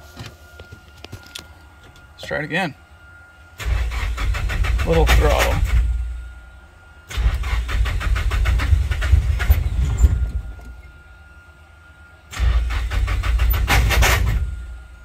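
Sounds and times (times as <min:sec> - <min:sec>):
engine cranking on starter: 0:03.6 - 0:06.0, 0:07.1 - 0:10.5, 0:12.3 - 0:14.6.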